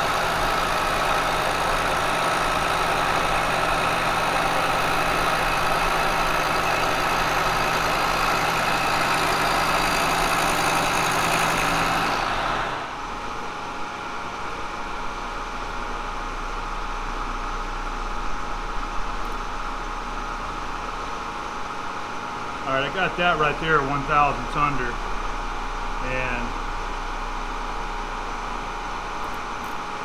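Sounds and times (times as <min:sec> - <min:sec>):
milling machine cutting metal: 0:00.0 - 0:13.0.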